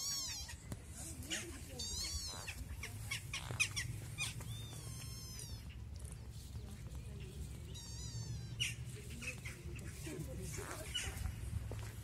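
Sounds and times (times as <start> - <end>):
kittens mewing: 0.0 - 5.9, 7.6 - 10.1
steady low rumble: 2.1 - 12.0.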